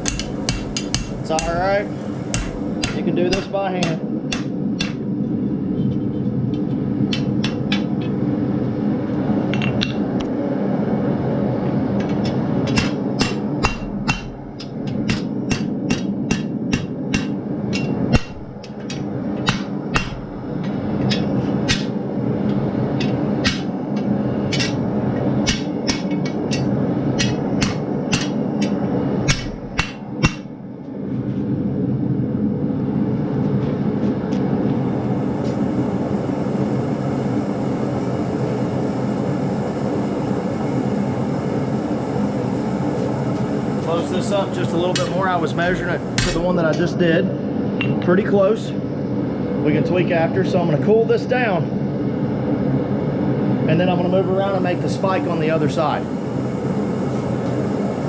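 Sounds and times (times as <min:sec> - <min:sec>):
hammer blows on anvil: 0:00.0 - 0:05.1, 0:12.1 - 0:22.0, 0:23.0 - 0:23.8, 0:25.4 - 0:30.6, 0:44.9 - 0:46.9
steady low roar: 0:00.0 - 0:37.6.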